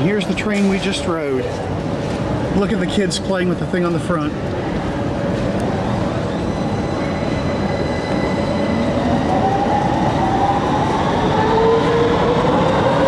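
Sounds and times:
train whine rising in pitch: 5.8 - 13.0.

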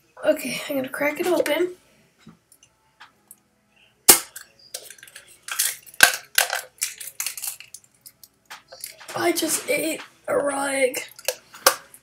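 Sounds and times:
eggshell crunching: 4.1 - 9.1.

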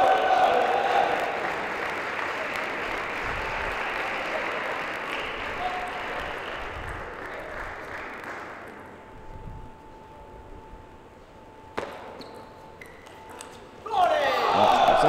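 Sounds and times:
spectators applauding: 0.0 - 8.9.

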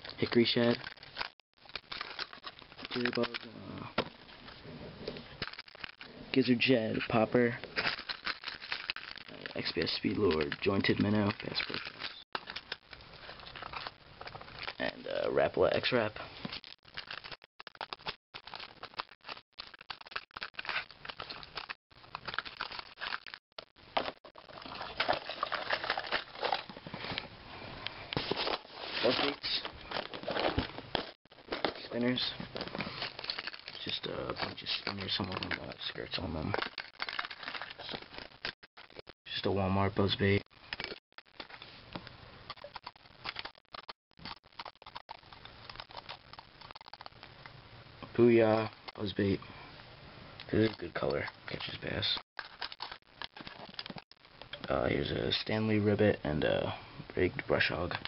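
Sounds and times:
plastic rustling: 0.0 - 4.6, 5.2 - 6.3, 6.9 - 39.5, 40.2 - 47.4, 50.5 - 55.5
fishing lures clicking and rattling: 42.5 - 47.3, 52.2 - 54.6.

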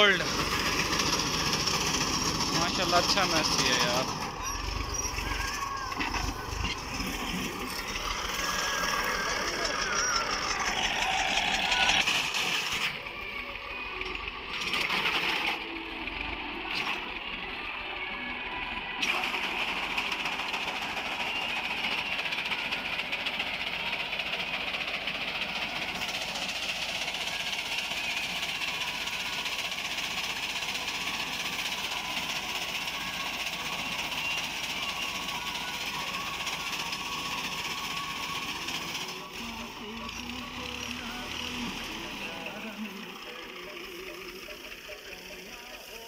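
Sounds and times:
reaper rattling clatter: 0.0 - 13.0
diesel tractor engine under load: 0.0 - 46.0.

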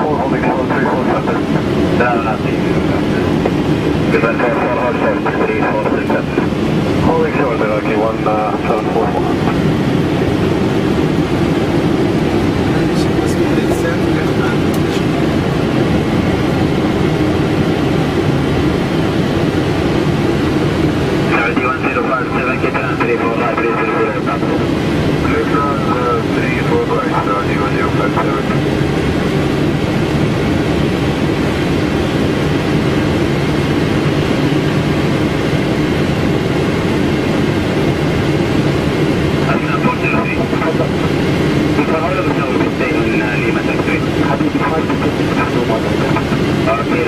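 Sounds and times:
aircraft engine noise: 0.0 - 47.0
rush of air in cockpit: 0.7 - 22.0.

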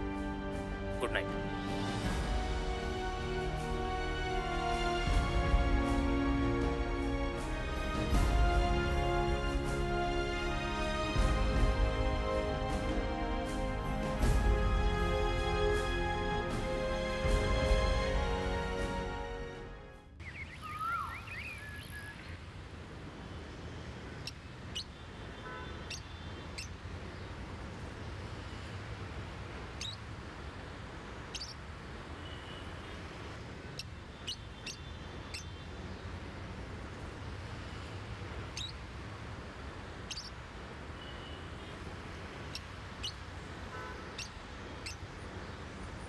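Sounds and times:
small birds chirping: 20.2 - 22.6, 23.7 - 28.2, 29.7 - 30.2, 31.2 - 36.4, 37.1 - 39.0, 39.9 - 46.0.

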